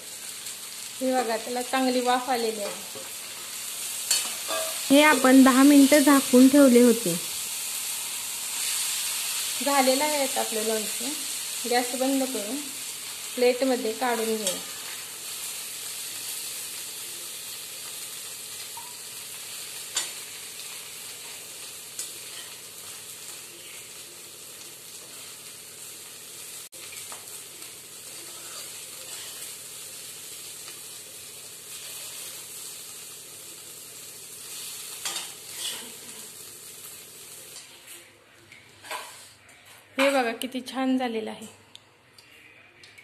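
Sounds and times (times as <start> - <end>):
pickle sizzling in a pan: 0.0 - 40.2
metal spatula scraping: 2.4 - 5.3, 22.0 - 23.0, 28.2 - 29.6, 35.0 - 36.3, 38.8 - 40.2.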